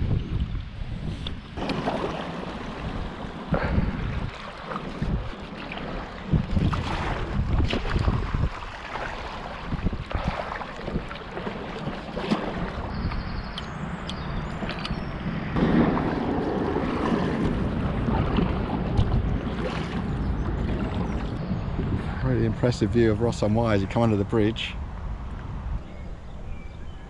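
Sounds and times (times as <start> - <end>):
wind on microphone: 0.0 - 27.0
paddle strokes splashing water: 1.6 - 13.5, 14.4 - 21.4.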